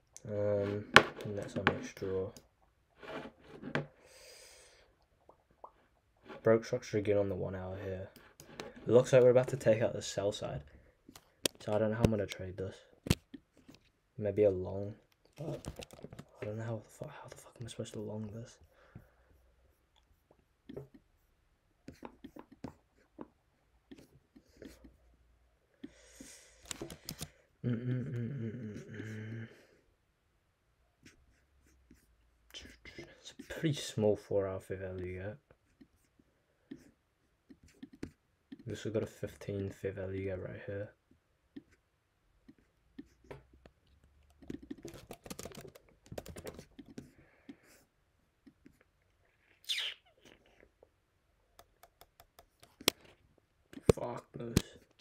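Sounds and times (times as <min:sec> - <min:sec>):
man muttering: 0:27.6 - 0:29.6
computer clicks and taps: 0:42.5 - 0:47.1, 0:51.6 - 0:53.1
typing on computer keyboard: 0:44.4 - 0:46.9.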